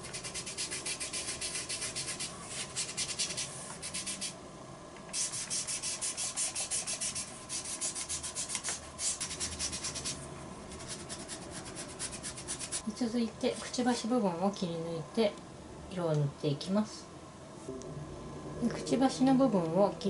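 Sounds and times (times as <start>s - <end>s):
cotton pad rubbing on paper: 0.1s - 4.3s, 5.2s - 12.8s.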